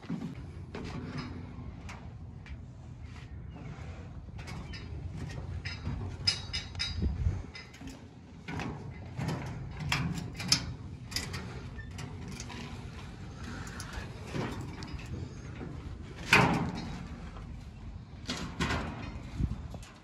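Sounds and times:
footsteps on metal planks: 0.0s - 2.6s
metal scaffolding clanking: 4.4s - 20.0s.

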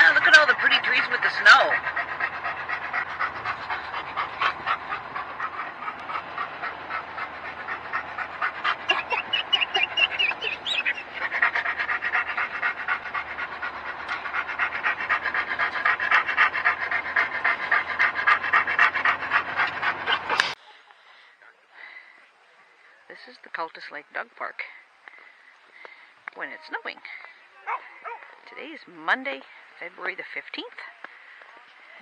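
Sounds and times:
dog panting rapidly: 0.0s - 20.6s
dog whining: 0.0s - 20.6s.

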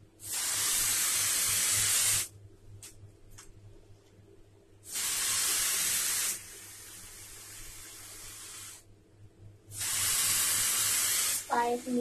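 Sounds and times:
airy hiss of spray tube: 0.2s - 2.3s, 4.9s - 8.9s, 9.7s - 12.0s.

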